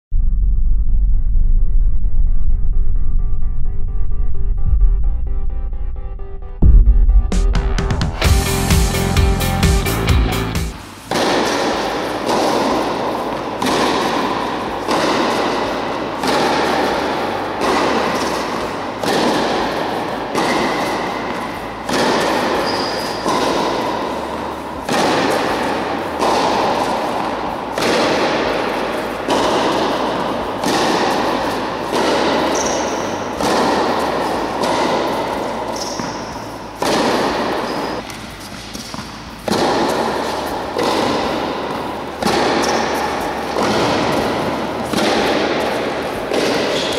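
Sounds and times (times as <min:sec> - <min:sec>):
tennis ball hit by racket: 0:10.6 - 0:46.9
short high squeaks: 0:22.6 - 0:23.3.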